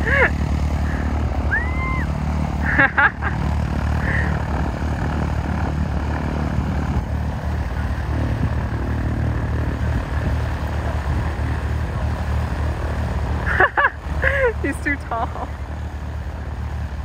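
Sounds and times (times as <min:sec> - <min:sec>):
propeller plane engine idling: 0:00.0 - 0:17.0.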